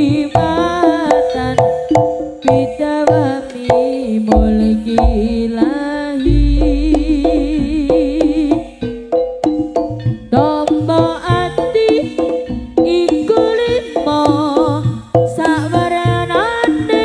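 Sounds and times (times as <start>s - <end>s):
wavering melody with vibrato: 2.7s - 9.4s
drum strokes: 4.3s - 10.0s
sustained deep low tone: 4.4s - 5.6s, 6.3s - 8.8s.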